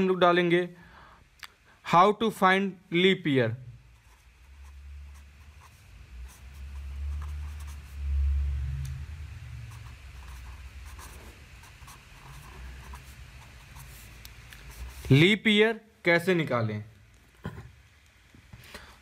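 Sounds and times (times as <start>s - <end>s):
marker pen writing on paper: 3.9s - 8.1s, 8.9s - 15.2s
low rumble: 6.7s - 10.2s.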